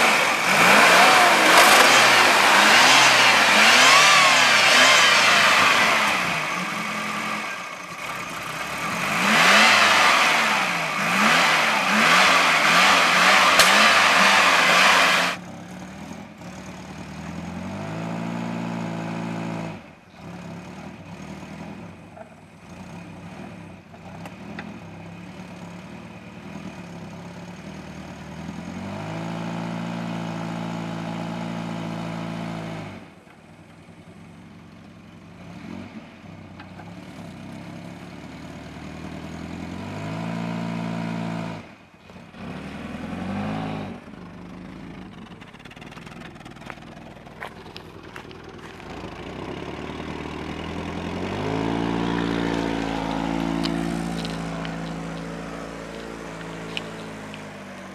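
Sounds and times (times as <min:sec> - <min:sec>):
car engine revving: 0:00.0 - 0:22.0, 0:39.8 - 0:57.9.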